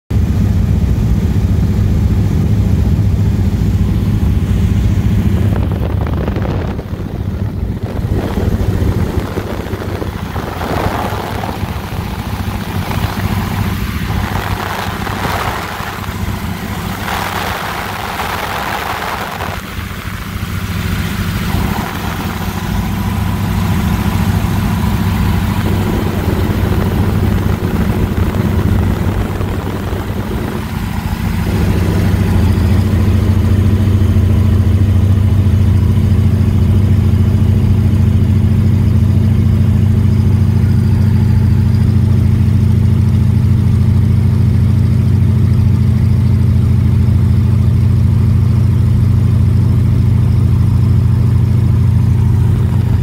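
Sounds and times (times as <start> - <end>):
plane engine droning: 0.1 - 46.5, 49.6 - 53.0
hissing rush: 3.3 - 34.2, 52.3 - 53.0.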